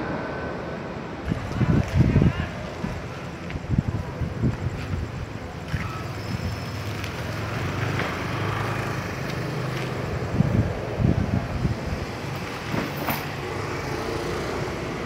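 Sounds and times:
jet engine rumble: 0.0 - 6.7, 9.9 - 13.9.

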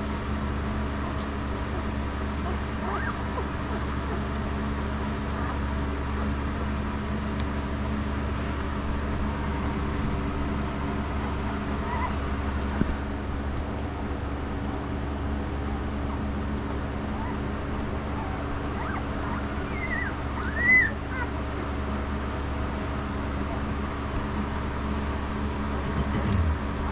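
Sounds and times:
low background hum: 0.0 - 26.9
puppies squeaking and whimpering: 0.9 - 6.8, 8.8 - 13.0, 16.8 - 21.7.

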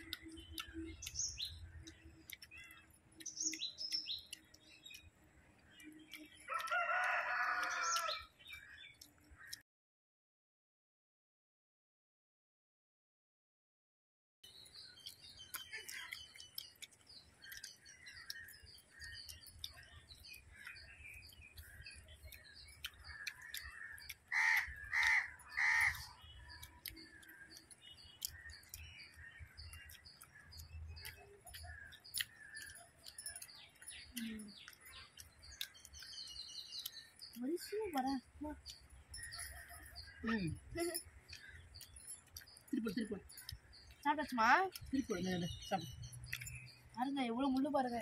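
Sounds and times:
small birds chirping: 0.0 - 9.6, 14.4 - 48.0
crow cawing: 23.6 - 26.2.

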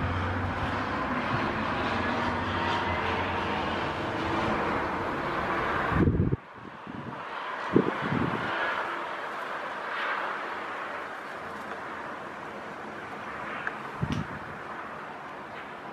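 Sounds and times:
distant town traffic hiss: 0.0 - 15.9
wind thumps on microphone: 5.9 - 8.5, 14.0 - 14.6.

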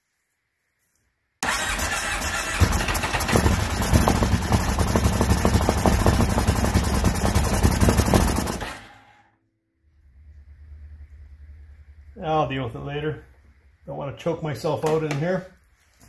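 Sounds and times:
engine running steadily: 1.4 - 9.2.

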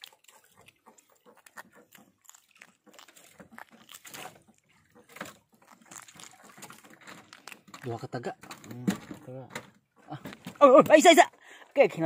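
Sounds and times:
rustling of fishing line: 0.0 - 8.8.

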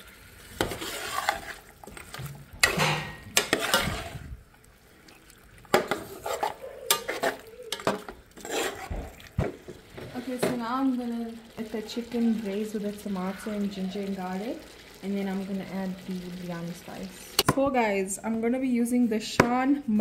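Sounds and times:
food sizzling: 0.0 - 19.0
metal spoon scraping pot: 0.6 - 4.3, 5.7 - 9.2.

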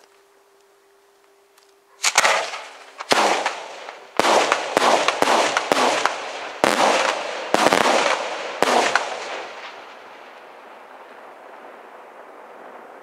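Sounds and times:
firework shells bursting with echo: 2.0 - 11.6.

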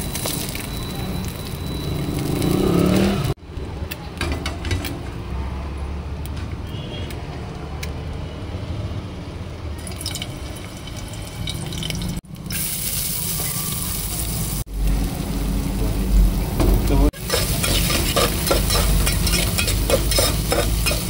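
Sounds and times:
hot oil hissing and sizzling: 9.8 - 21.0.

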